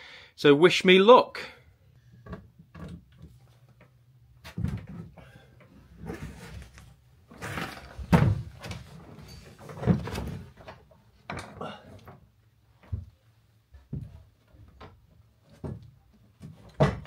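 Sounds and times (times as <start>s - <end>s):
person crawling with knocks and scrapes: 4.4s - 16.8s.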